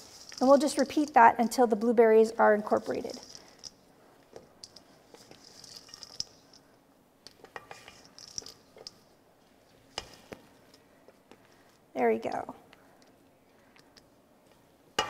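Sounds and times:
batter squishing: 0.0s - 1.2s.

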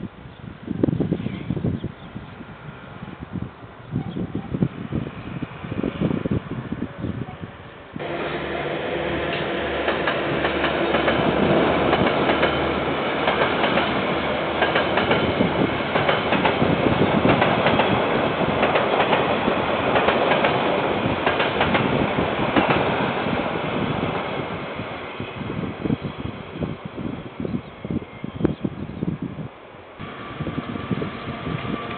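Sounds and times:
wheels clacking over rail joints: 8.0s - 23.0s
low locomotive engine note: 8.0s - 25.7s, 30.0s - 31.9s.

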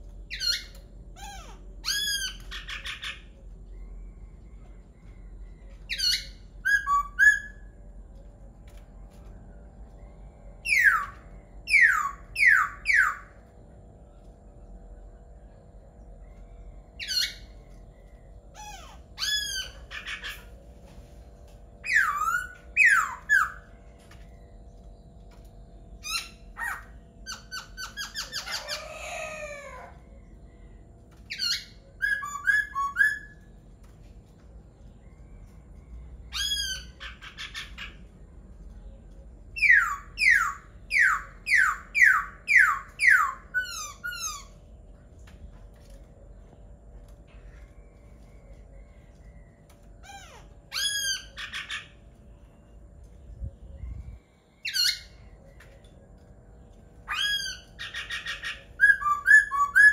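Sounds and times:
faint steady hum: 0.0s - 59.9s
bird singing whistled phrases: 31.4s - 33.4s, 57.1s - 59.9s.

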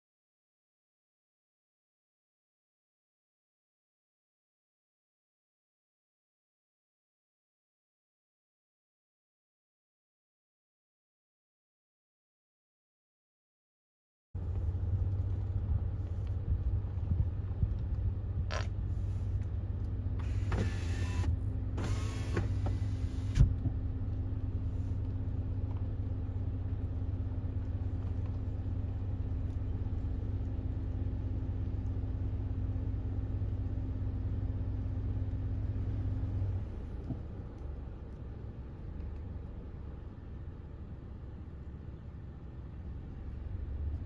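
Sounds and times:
vehicle engine rumble: 14.4s - 44.0s
short whining squeaks: 20.2s - 23.4s.

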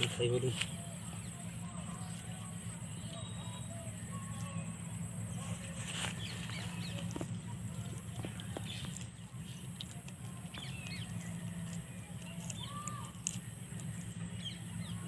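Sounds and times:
faint bird chirps: 0.0s - 9.1s
steady low hum: 0.0s - 15.0s.

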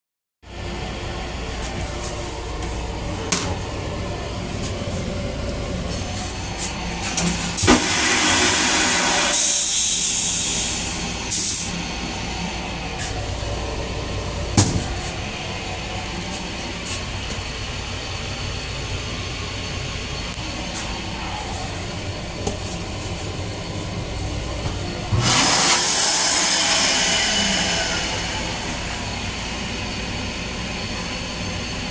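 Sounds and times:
moving train rumble: 0.8s - 31.9s
toilet flushing hiss: 5.9s - 13.4s, 25.1s - 31.6s.

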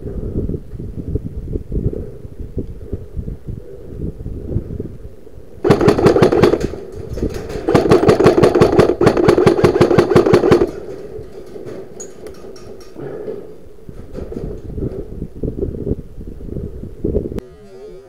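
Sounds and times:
airsoft rifle firing full auto: 5.6s - 6.9s, 7.5s - 10.8s.

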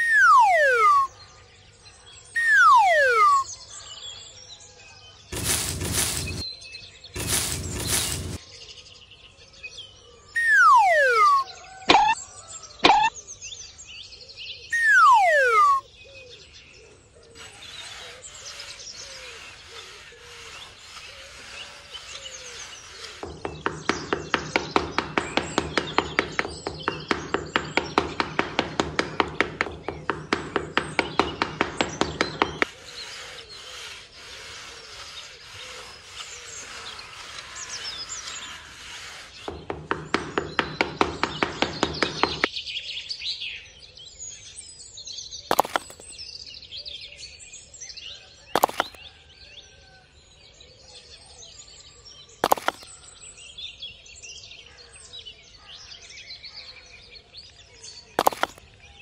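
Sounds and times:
birds chirping: 0.0s - 1.3s, 1.9s - 4.1s, 5.3s - 8.4s, 10.2s - 13.6s, 14.6s - 16.0s, 16.6s - 42.5s, 48.6s - 49.0s, 52.4s - 53.2s, 57.9s - 59.0s
quick even strokes: 5.4s - 6.4s, 7.2s - 8.4s
sharp knocks: 11.9s - 12.2s, 12.8s - 13.1s, 23.2s - 32.7s, 45.5s - 46.0s, 48.6s - 49.0s.

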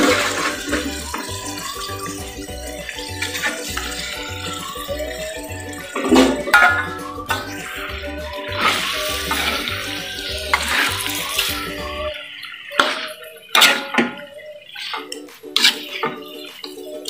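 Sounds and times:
chicken stirred in spice paste: 0.0s - 12.0s, 14.7s - 17.0s
background music with bass beat: 0.0s - 12.2s.

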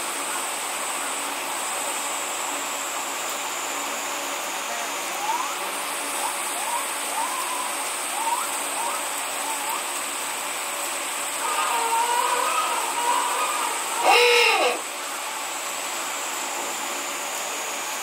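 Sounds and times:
rushing water: 0.0s - 18.0s
penguin trumpeting call: 11.4s - 14.8s.

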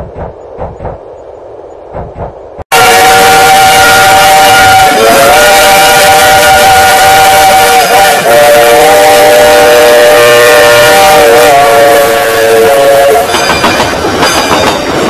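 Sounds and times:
steam locomotive chime whistle: 2.7s - 14.9s
steam hiss: 2.9s - 13.7s.

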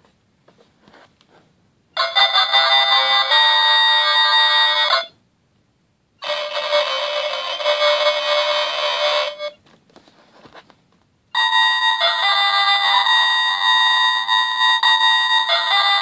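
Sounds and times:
toy playing flute-like tune: 2.0s - 5.2s, 6.2s - 9.6s, 11.4s - 16.0s.

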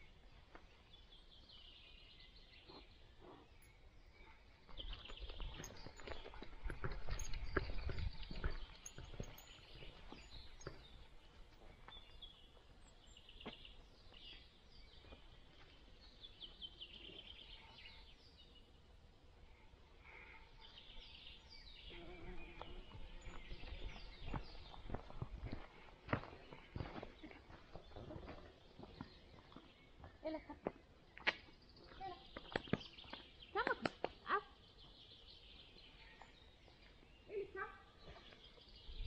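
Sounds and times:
birdsong: 0.0s - 39.0s
dog paws on forest path: 4.2s - 16.6s, 22.4s - 38.8s.

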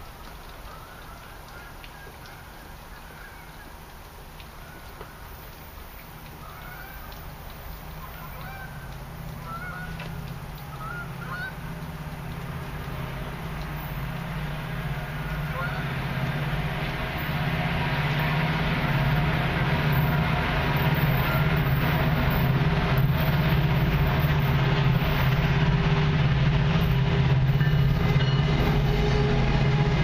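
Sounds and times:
low engine hum: 0.0s - 30.0s
geese honking: 6.4s - 7.2s, 8.0s - 11.7s, 15.2s - 16.0s.

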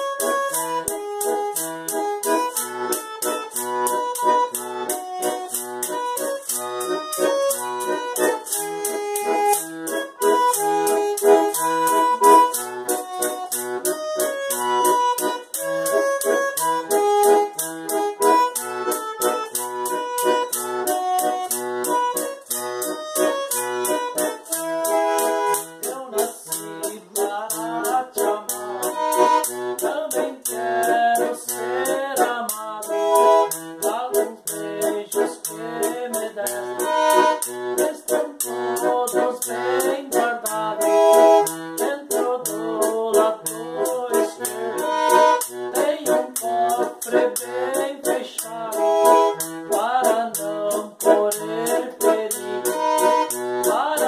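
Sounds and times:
button accordion playing: 0.0s - 54.0s
man singing: 25.8s - 29.2s, 29.8s - 41.2s, 41.8s - 54.0s.

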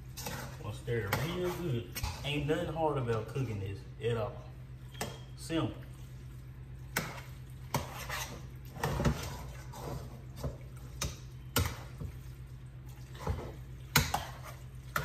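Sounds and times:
spoon scraping metal pot: 0.0s - 2.7s, 7.0s - 10.5s.

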